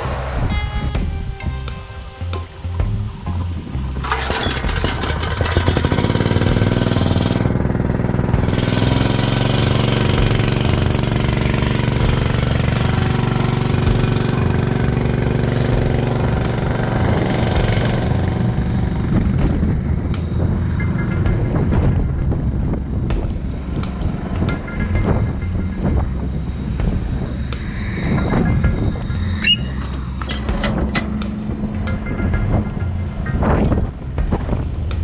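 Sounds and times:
small gasoline engine running: 4.0 - 21.3.

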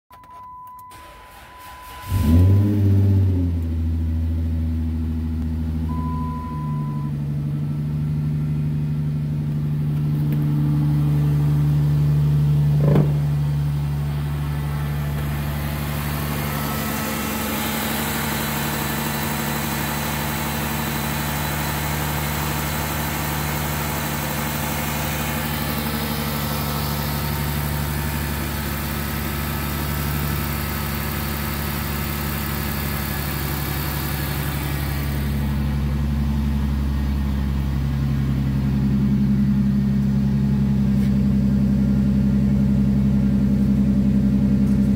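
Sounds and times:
dashboard beep: 0.1 - 1.0, 5.9 - 7.1
car engine starting and idling: 0.1 - 44.9.

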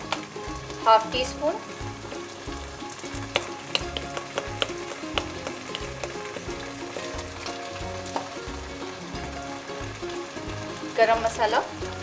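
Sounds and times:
background music: 0.0 - 12.0
chicken sizzling in a pan: 0.0 - 12.0
spatula clicking against pan: 3.1 - 7.6.

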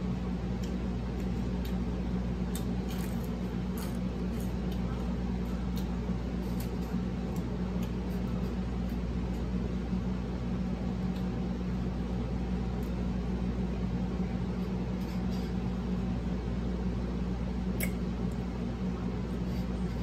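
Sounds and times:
low room hum: 0.0 - 20.0
chewing and soft clicks: 0.5 - 1.8, 2.5 - 9.5.

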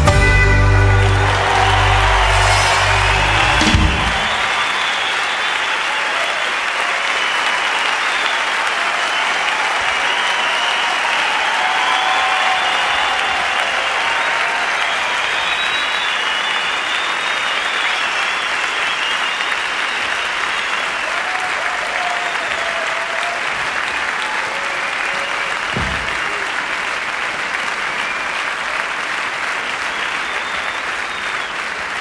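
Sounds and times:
audience applauding: 0.0 - 32.0
high whistles: 1.2 - 6.5, 7.2 - 21.1, 29.6 - 31.7
low thump: 25.7 - 26.2.

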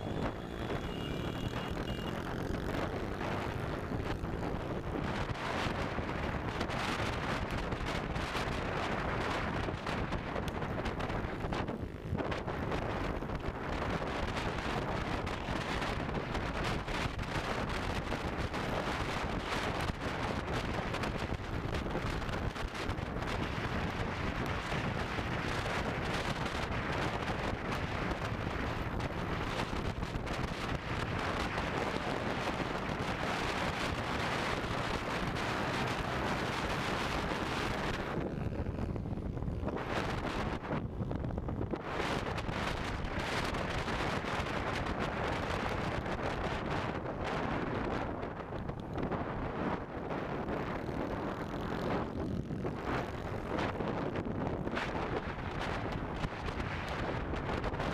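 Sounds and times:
motorcycle engine: 0.0 - 57.9
road noise: 0.0 - 57.9
wind rushing on microphone: 0.0 - 57.9.

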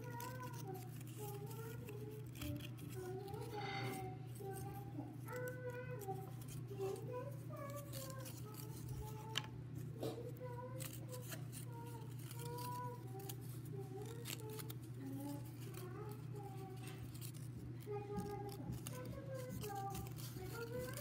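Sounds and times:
cardboard rings clicking and crinkling: 4.3 - 21.0.

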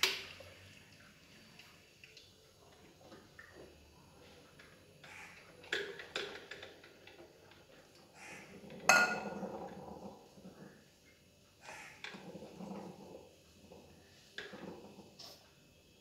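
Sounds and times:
glass clink with ring: 8.9 - 9.3
glass carafe knocks: 8.9 - 9.4.

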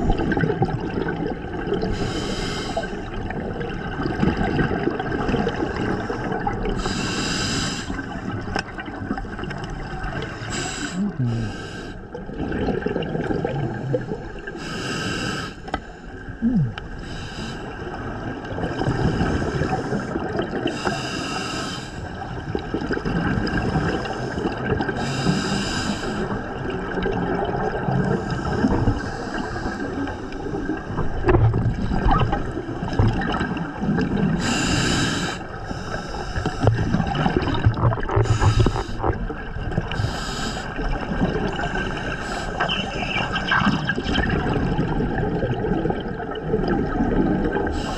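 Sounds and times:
exhaust bubbles underwater: 0.0 - 7.2, 7.9 - 14.7, 16.3 - 17.1, 17.7 - 21.0, 22.1 - 47.9
low underwater rumble: 26.4 - 34.6, 35.5 - 47.7.

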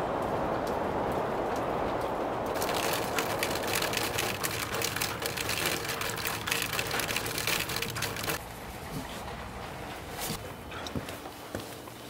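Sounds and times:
rain falling: 0.0 - 8.8.

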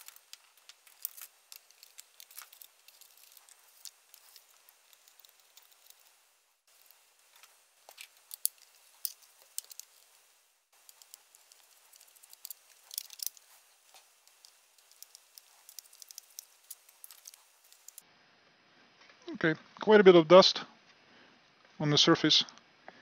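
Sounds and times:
screwdriver clicks and scrapes: 0.0 - 18.0.

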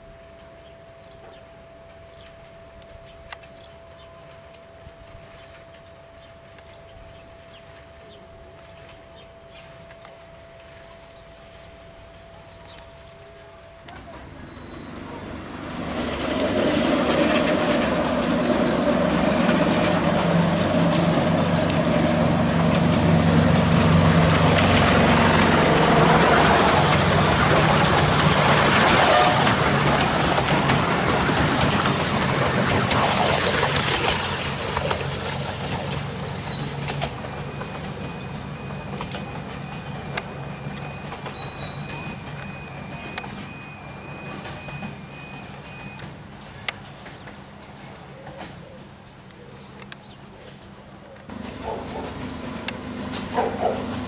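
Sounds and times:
birds chirping: 0.0 - 4.4, 5.2 - 15.6, 24.5 - 54.0
diesel locomotive engine running: 0.0 - 49.9, 50.6 - 54.0
train wheels rumbling on rails: 12.6 - 50.7, 51.3 - 54.0.

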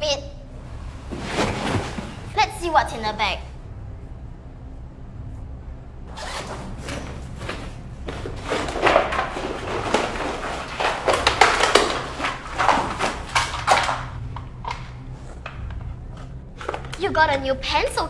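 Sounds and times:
bag fabric rustling: 1.0 - 2.4, 6.1 - 14.2
objects clattering onto tiled floor: 6.8 - 17.0.

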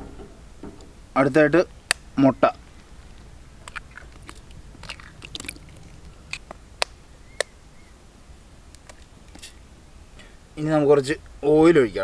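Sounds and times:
eggshells cracking: 1.8 - 7.6.

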